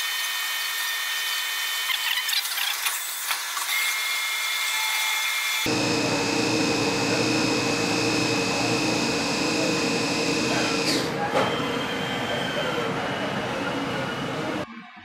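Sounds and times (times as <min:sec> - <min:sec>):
end mill cutting plastic: 0:04.7 - 0:14.6
milling machine spindle whine: 0:05.4 - 0:14.6.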